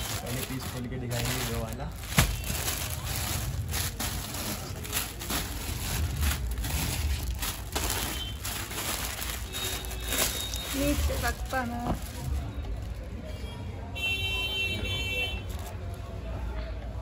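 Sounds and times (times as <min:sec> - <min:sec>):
plastic packaging crinkling: 0:00.0 - 0:13.1.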